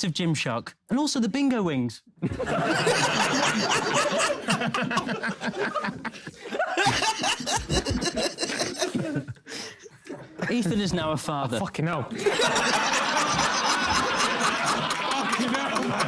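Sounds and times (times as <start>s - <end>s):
men laughing loudly: 2.2s - 9.6s, 12.1s - 16.0s.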